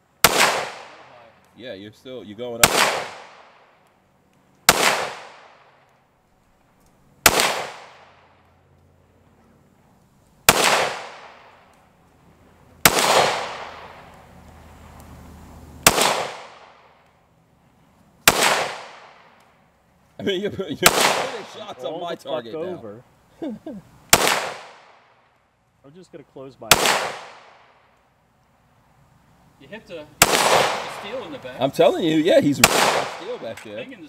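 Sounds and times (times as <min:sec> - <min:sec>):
pistol shots echoing: 0:00.2 - 0:01.2, 0:02.6 - 0:03.8, 0:04.7 - 0:05.8, 0:07.2 - 0:08.3, 0:10.5 - 0:11.7, 0:12.8 - 0:14.2, 0:15.8 - 0:16.9, 0:18.2 - 0:19.4, 0:20.8 - 0:21.8, 0:24.1 - 0:25.2, 0:26.7 - 0:27.8, 0:30.2 - 0:31.4, 0:32.6 - 0:33.6.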